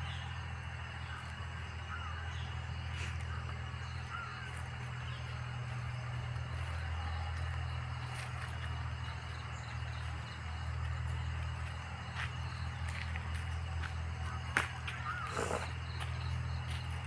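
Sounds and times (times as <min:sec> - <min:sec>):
small birds chirping: 0:00.0 - 0:17.0
steady low rumble: 0:00.0 - 0:17.0
crows cawing: 0:01.8 - 0:05.3, 0:14.2 - 0:15.8.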